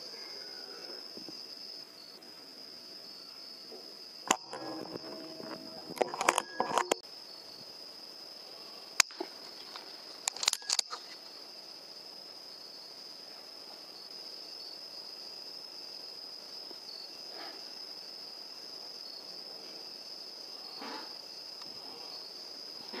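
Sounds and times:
crickets trilling: 0:00.0 - 0:23.0
faint short sounds: 0:04.3 - 0:07.0.

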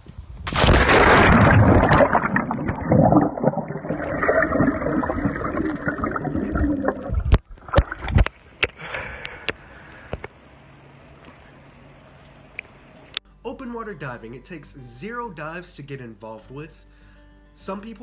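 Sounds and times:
water splashing: 0:00.5 - 0:08.6
muffled underwater wash: 0:00.6 - 0:08.7.

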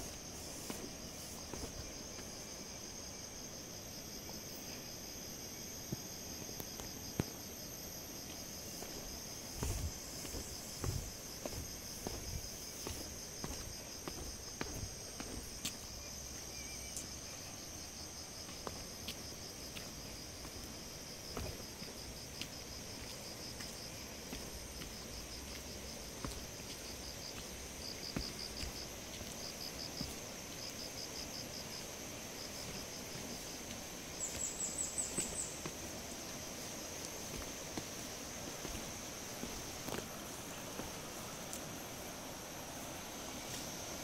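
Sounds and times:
footsteps on concrete: 0:00.0 - 0:02.4, 0:08.2 - 0:17.2, 0:18.4 - 0:30.8, 0:32.4 - 0:41.6
insects chirring: 0:00.0 - 0:44.0.

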